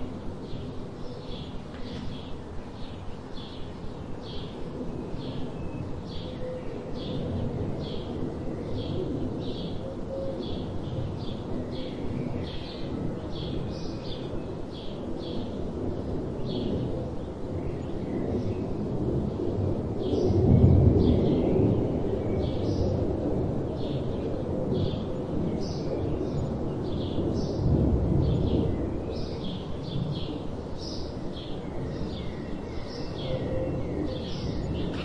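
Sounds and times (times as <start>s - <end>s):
steady low rumble: 0.0s - 35.0s.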